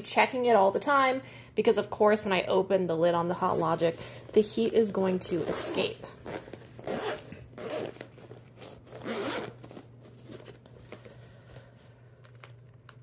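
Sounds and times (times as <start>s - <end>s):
zipper being pulled open: 5.3s - 10.6s.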